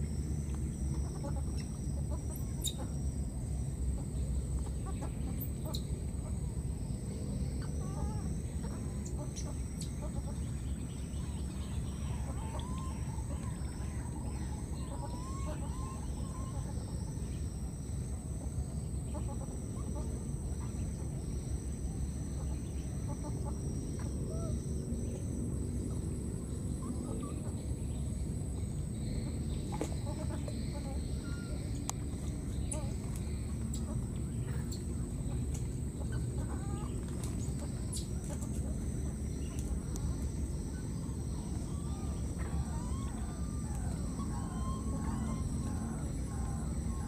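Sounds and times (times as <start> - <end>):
animal calls: 11.2 - 17.5, 36.0 - 47.0.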